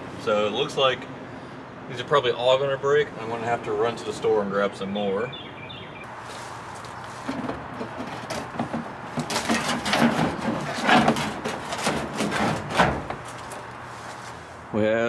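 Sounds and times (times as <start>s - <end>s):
plastic liner scraping and knocking: 7.2s - 13.7s.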